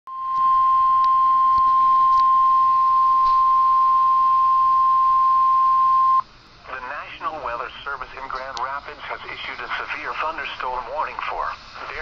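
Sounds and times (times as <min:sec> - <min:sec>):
loud steady high beep: 0:00.1 - 0:06.2.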